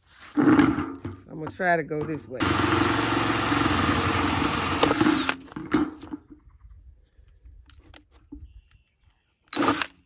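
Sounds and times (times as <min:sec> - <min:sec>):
cordless drill whining: 0:02.4 - 0:05.6, 0:09.5 - 0:10.0.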